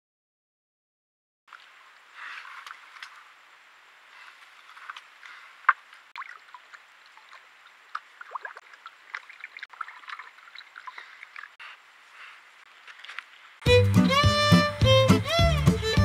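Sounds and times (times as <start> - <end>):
animal lapping water: 4.3 - 12.4.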